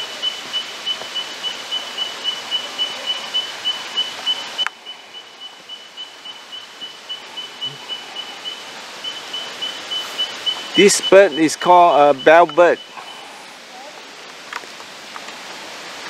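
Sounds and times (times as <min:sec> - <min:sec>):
bird calling high tink notes: 0:00.0 - 0:13.3.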